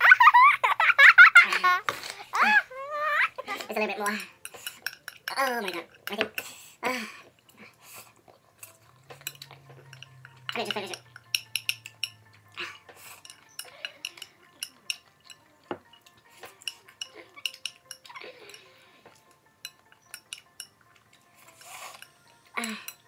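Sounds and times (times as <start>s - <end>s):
chopsticks tapping ceramic bowl: 4.1s - 6.5s, 9.1s - 21.1s.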